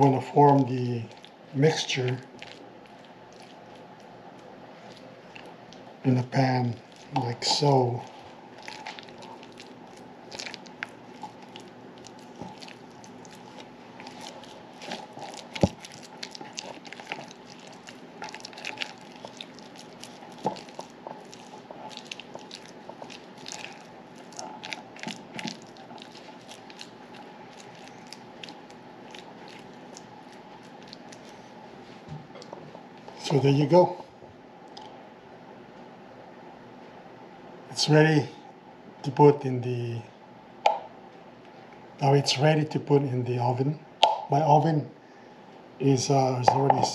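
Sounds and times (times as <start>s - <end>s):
wet squishing of meat mixture: 0.0s - 32.5s.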